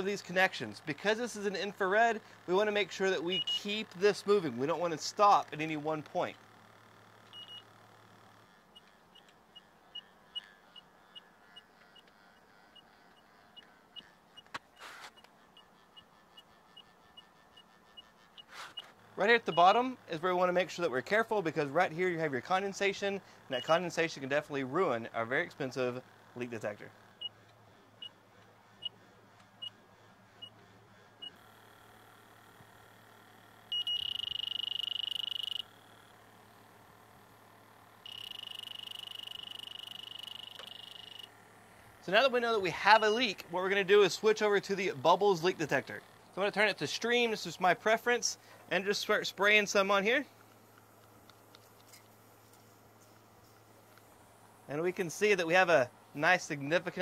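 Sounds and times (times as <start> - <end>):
leak detector beeping: 3.2 - 4.0, 7.2 - 7.8, 8.7 - 19.8, 23.5 - 23.9, 27.2 - 27.4, 28.0 - 28.2, 31.2 - 31.8, 33.4 - 36.1, 37.8 - 41.5, 42.8 - 43.3
pulsing high alarm tone: 3.3 - 3.8, 7.3 - 7.7, 33.7 - 35.8, 38.0 - 41.4
short high electronic beeps: 7.4 - 7.7, 33.7 - 35.6, 38.1 - 41.3.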